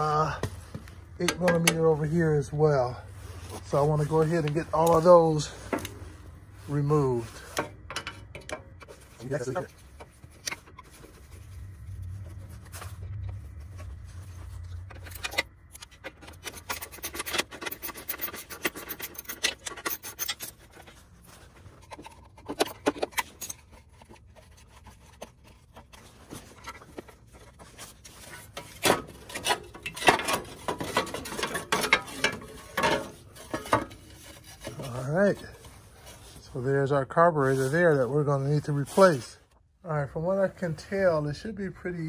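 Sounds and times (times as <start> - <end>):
screwdriver and plastic parts scraping: 0.0 - 2.1, 3.6 - 6.2, 6.9 - 36.5.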